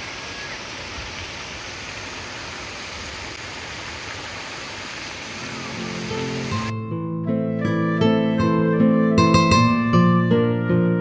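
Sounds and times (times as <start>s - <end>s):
fountain water splashing: 0.0s - 6.8s.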